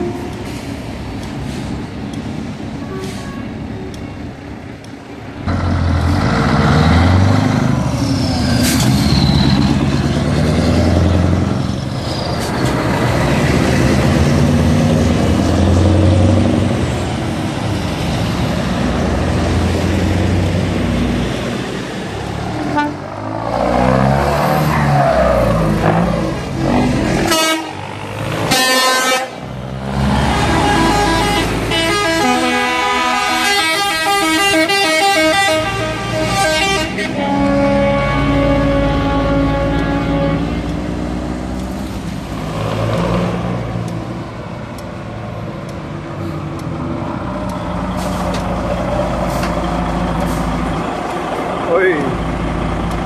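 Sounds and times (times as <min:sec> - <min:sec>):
heavy trucks driving past: 0:00.0 - 0:53.0
truck horn toots: 0:22.6 - 0:23.1, 0:27.2 - 0:27.8, 0:28.5 - 0:29.4, 0:30.4 - 0:40.7.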